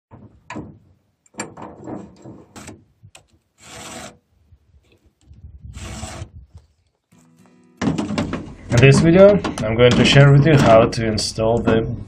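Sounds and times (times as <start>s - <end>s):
metal knocks and scrapes: 0.1s - 2.8s, 7.8s - 11.0s
file rasping on chainsaw chain: 3.6s - 4.2s, 5.8s - 6.3s.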